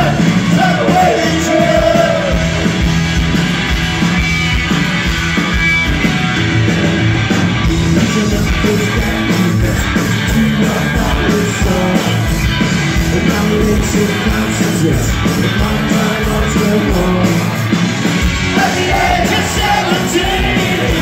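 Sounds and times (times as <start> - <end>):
lead vocal singing: 0.0 - 2.6, 7.8 - 12.4, 13.0 - 17.6, 18.4 - 21.0
punk rock band playing: 0.0 - 21.0.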